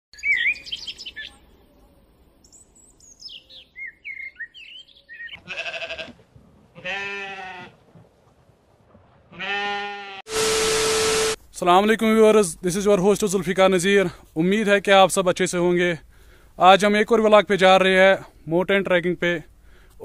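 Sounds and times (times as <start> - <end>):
bird chirps: 0.2 - 1.8, 2.4 - 5.4
animal bleating: 5.4 - 6.2, 6.8 - 7.8, 9.3 - 10.2.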